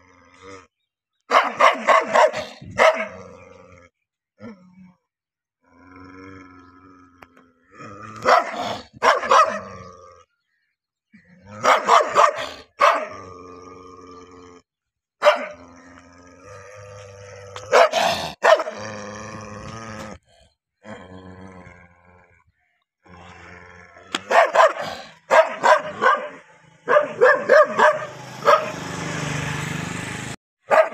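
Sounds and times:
dog barking: 1.3s - 3.2s, 8.2s - 9.7s, 11.6s - 13.1s, 15.2s - 15.6s, 17.7s - 18.8s, 24.2s - 28.8s, 30.6s - 30.9s
dog growling: 5.7s - 10.4s, 15.4s - 28.7s.

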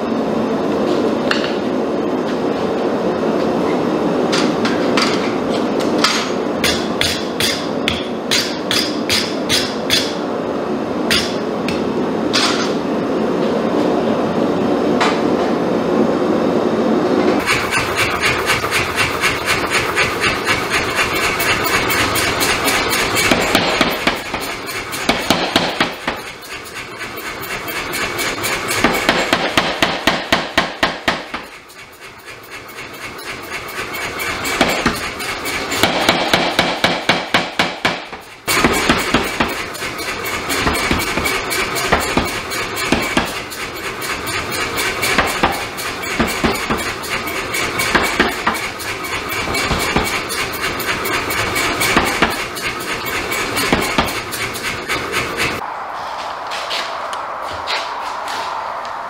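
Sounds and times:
shop machinery roar: 0.0s - 59.0s
power hammer pounding steel: 6.2s - 10.2s, 11.1s - 11.4s, 17.4s - 55.6s.

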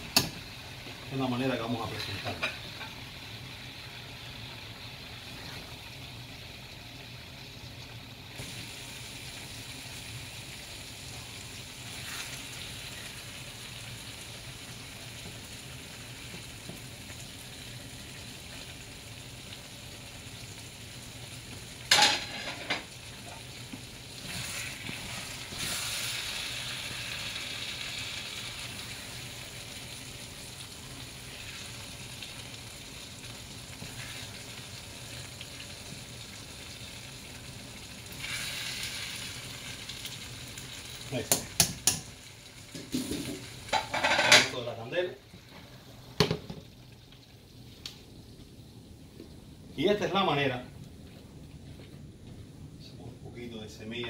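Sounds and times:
food sizzling in a pan: 0.0s - 50.7s.

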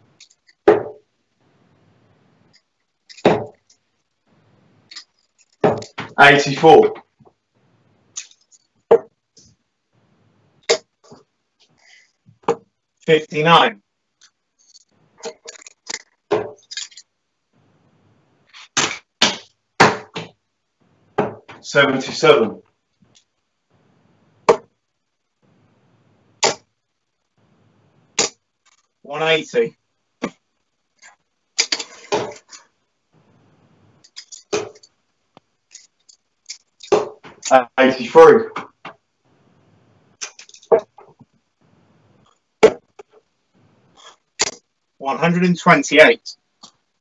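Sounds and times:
darts striking a dartboard: 18.8s - 20.4s.

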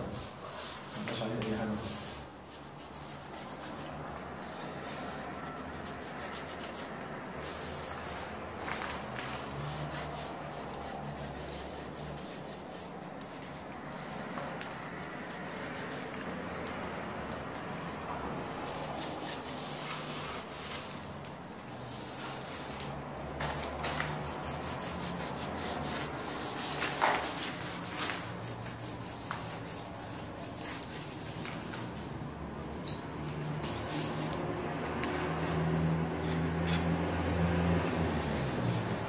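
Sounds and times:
hands rubbing window frame: 0.0s - 16.3s, 18.6s - 39.0s
masking tape peeling: 18.6s - 37.0s, 38.0s - 39.0s.

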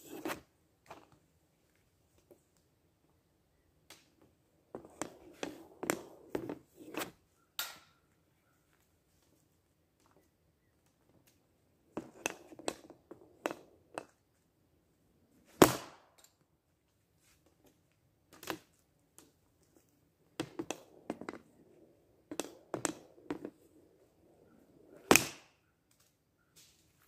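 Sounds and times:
hockey stick tapping pucks: 4.8s - 7.9s, 12.0s - 14.2s, 20.3s - 23.8s, 24.4s - 25.5s
sharp crack of hockey shot: 15.6s - 16.2s, 25.0s - 25.6s.

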